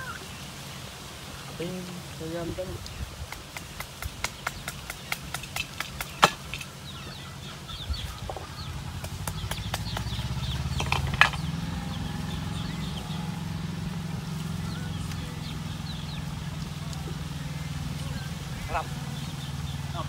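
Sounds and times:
chickens clucking: 0:01.5 - 0:20.0
chicks peeping: 0:01.6 - 0:20.0
low steady hum: 0:05.5 - 0:20.0.

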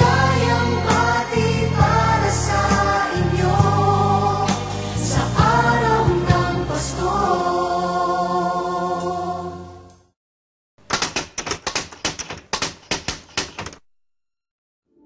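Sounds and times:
christmas song held chord: 0:00.0 - 0:10.0
typewriter key clicks: 0:10.8 - 0:13.9.

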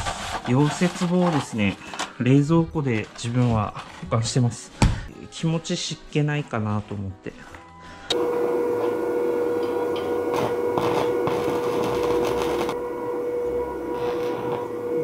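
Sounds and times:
welder high hum: 0:08.1 - 0:15.0
arc welding crackling hiss: 0:08.2 - 0:12.8, 0:13.8 - 0:15.0.

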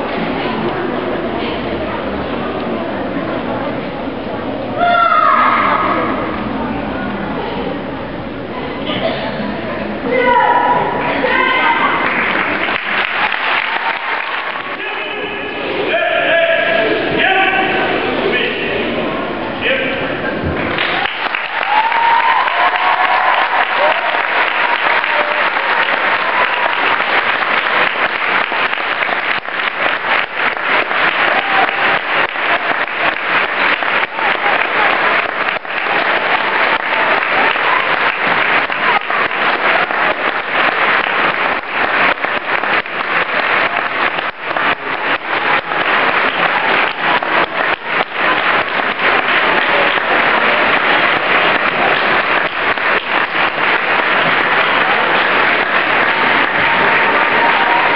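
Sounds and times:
crowd applauding: 0:11.1 - 0:15.7, 0:20.5 - 0:57.9.

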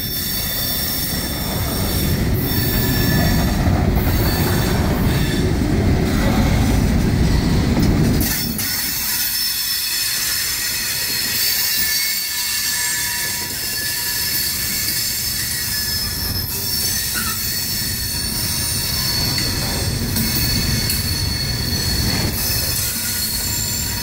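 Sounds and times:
wheel squeal: 0:00.0 - 0:05.6, 0:07.2 - 0:24.0
train cars rumbling: 0:00.0 - 0:24.0.

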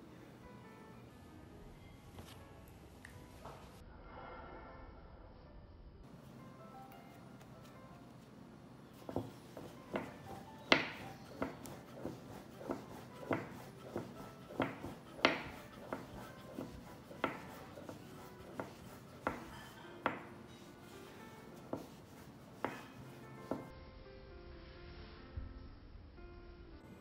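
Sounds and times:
soft background music: 0:00.0 - 0:27.0
rolling pin knocking on board: 0:09.0 - 0:20.3, 0:22.6 - 0:23.7.

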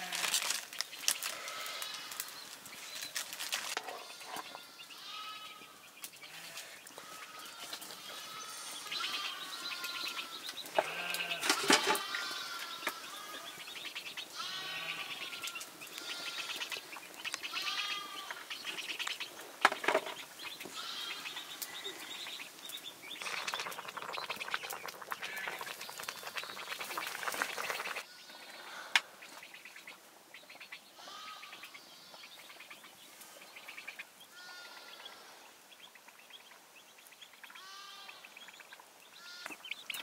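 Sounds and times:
sheep bleating: 0:01.3 - 0:02.3, 0:04.0 - 0:13.6, 0:14.3 - 0:16.6, 0:17.5 - 0:18.4, 0:31.0 - 0:32.2, 0:34.3 - 0:35.0, 0:39.2 - 0:39.6.

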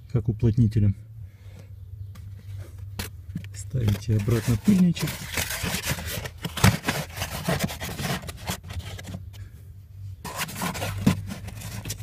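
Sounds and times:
foam scraping against trim: 0:04.0 - 0:09.2, 0:10.2 - 0:12.0.

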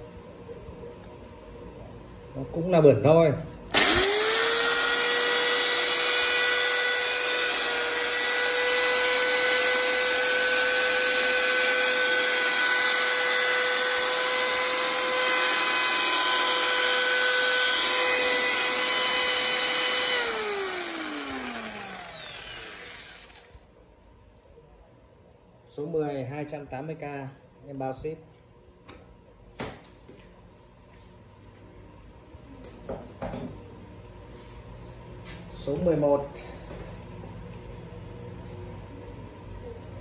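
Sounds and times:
power tool motor whining: 0:03.7 - 0:23.6.

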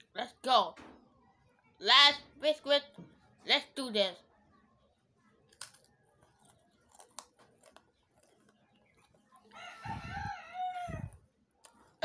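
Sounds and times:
cracker being bitten: 0:05.5 - 0:08.5
rooster crowing: 0:09.5 - 0:11.2.

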